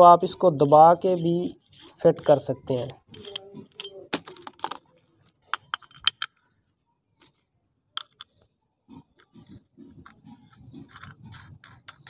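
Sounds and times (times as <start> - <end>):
metal parts clicking and clinking: 0.6 - 2.3, 3.0 - 6.4, 10.0 - 12.0.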